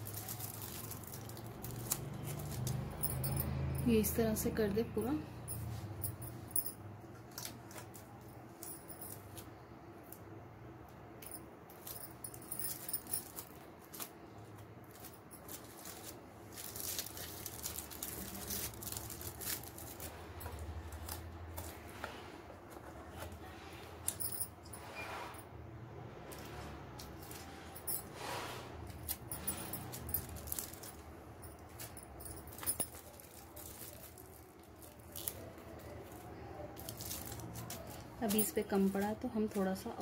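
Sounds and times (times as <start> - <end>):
aluminium foil crinkling: 0.0 - 3.0, 12.7 - 21.9, 29.0 - 31.1, 31.7 - 40.0.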